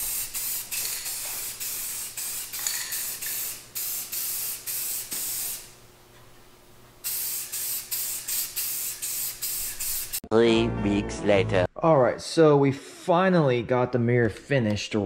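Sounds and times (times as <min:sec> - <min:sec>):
aerosol spray can hissing: 0:00.0 - 0:05.7, 0:07.0 - 0:10.2.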